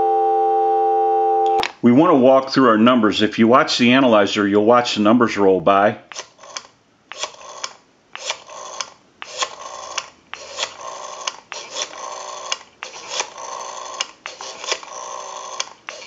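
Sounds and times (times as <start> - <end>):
rotary dial whirring and clicking: 6.1 - 16.0.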